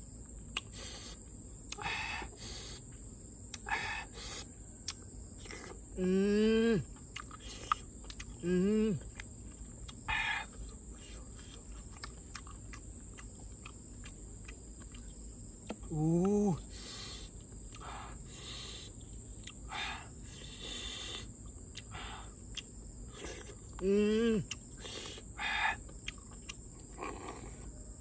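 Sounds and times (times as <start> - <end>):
high insect drone: 0.0 - 28.0
man sound of enjoyment: 15.9 - 16.6, 23.8 - 24.5
man slurping snails: 23.1 - 27.7.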